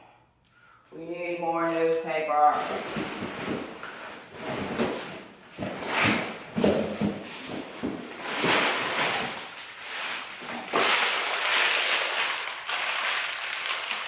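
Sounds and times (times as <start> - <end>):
newspaper crumpling: 8.2 - 14.0.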